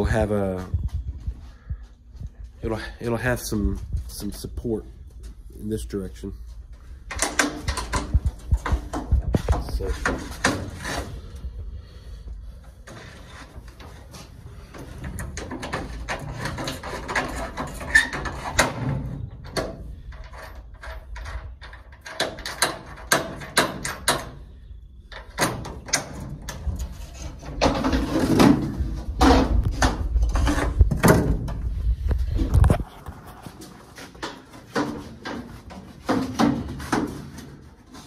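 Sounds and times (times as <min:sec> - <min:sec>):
wooden cage frame clicks and rattles: 0:07.1 - 0:11.1, 0:15.1 - 0:24.4.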